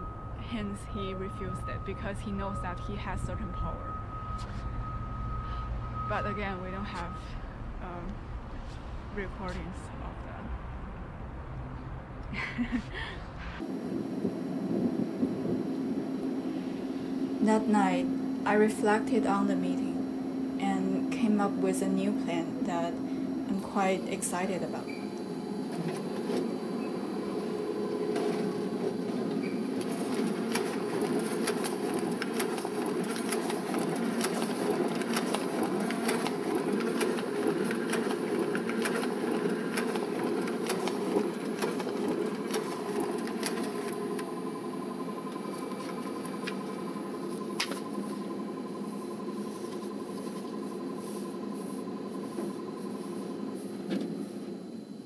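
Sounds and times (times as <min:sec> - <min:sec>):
faint high hum: 0:00.0 - 0:55.0
printer mechanical whirring: 0:13.4 - 0:55.0.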